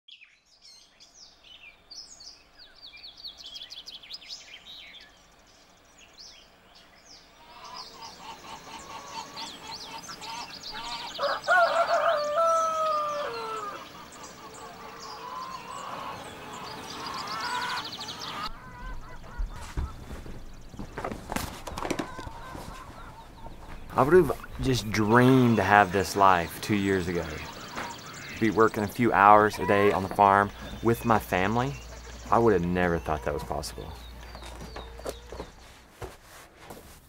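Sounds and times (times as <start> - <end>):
small birds chirping: 0.1 - 36.2
chickens and ducks calling: 7.2 - 36.2
rooster crowing: 10.7 - 18.9.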